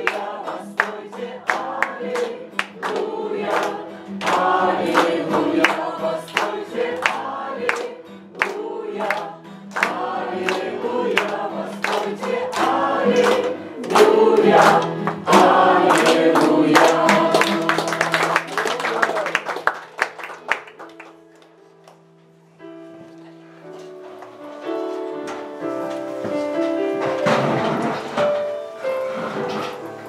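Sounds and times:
congregation singing: 0.0s - 19.7s, 25.4s - 30.0s
hands clapping on the beat: 0.0s - 22.0s.

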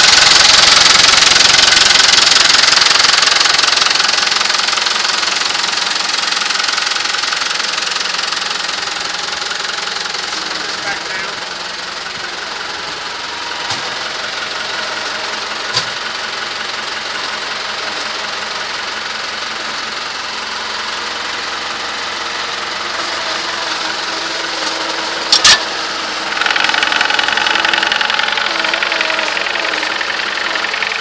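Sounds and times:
diesel tractor engine idling: 0.0s - 31.0s
sharp metal double clank: 25.3s - 25.8s.

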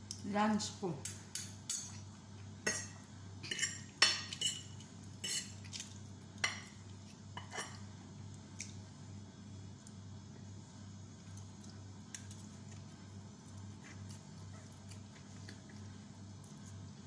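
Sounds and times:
cutlery clinking against a plate: 2.7s - 5.6s.

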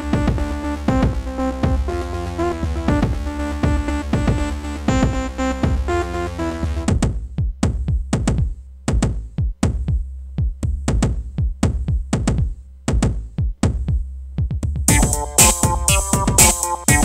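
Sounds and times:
fast drum-machine beat: 0.0s - 6.1s, 6.8s - 17.0s
synth chords: 0.0s - 6.9s, 14.9s - 17.0s
low steady bass: 0.0s - 17.0s.

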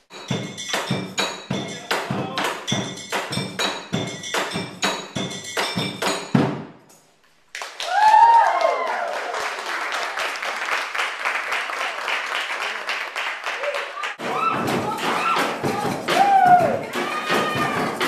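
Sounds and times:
drums beaten with sticks: 0.0s - 6.9s, 14.2s - 18.0s
audience cheering and applauding: 7.5s - 18.0s.

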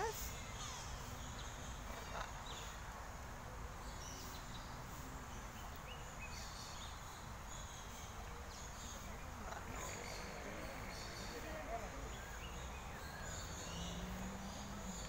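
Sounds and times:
faint small bird chirps: 0.0s - 2.8s
low background noise: 0.0s - 15.0s.

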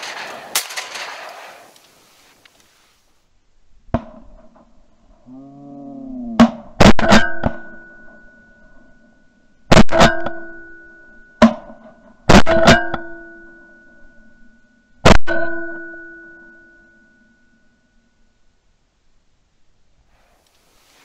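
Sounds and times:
shotgun blasts: 0.0s - 1.8s.

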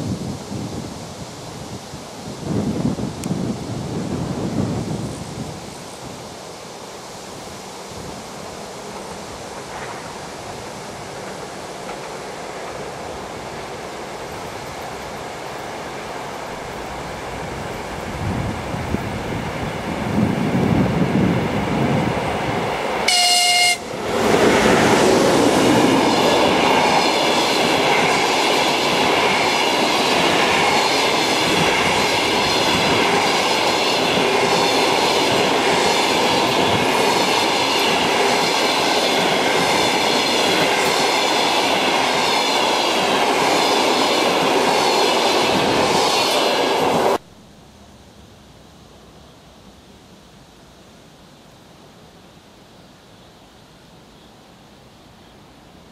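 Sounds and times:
train coaches rushing past: 3.5s - 47.2s
train horn blast: 23.1s - 24.0s.

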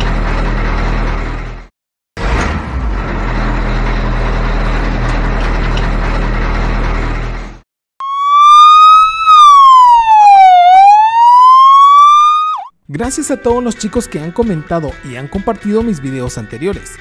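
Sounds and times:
electronic siren wailing: 8.0s - 12.7s.

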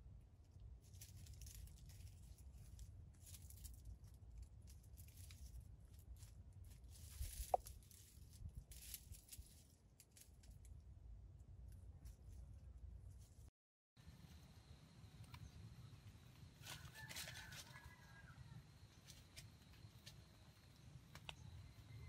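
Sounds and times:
dry leaves rustling: 0.8s - 10.5s, 16.6s - 21.2s.

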